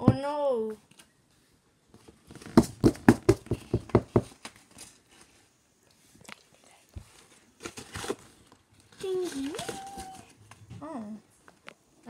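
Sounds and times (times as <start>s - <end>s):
sharp knocks and crunches: 2.3s - 4.5s
faint paper rustling: 3.5s - 11.6s.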